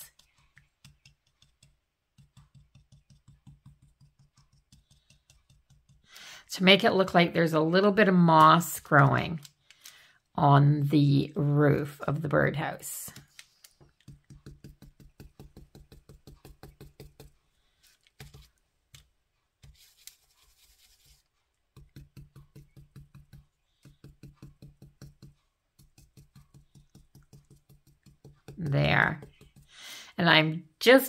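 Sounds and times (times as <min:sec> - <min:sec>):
paintbrush tapping on wood: 0:00.1 - 0:06.1, 0:13.9 - 0:17.4, 0:21.7 - 0:29.8.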